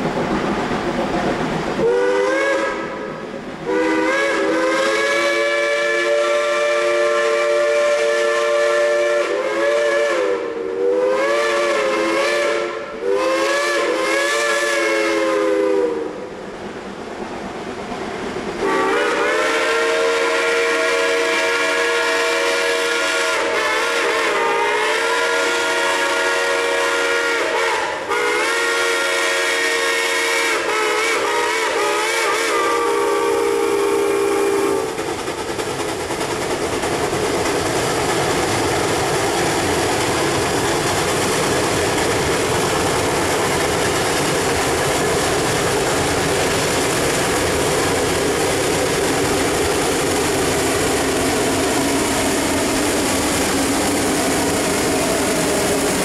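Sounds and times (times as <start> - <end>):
steam locomotive exhaust: 0.0 - 56.0
steam locomotive whistle: 1.8 - 16.4, 18.6 - 35.0.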